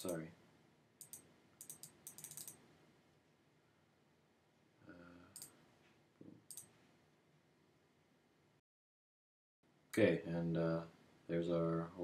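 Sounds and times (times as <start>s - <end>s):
computer mouse clicks: 1.0s - 2.6s, 5.3s - 5.6s, 6.5s - 6.8s.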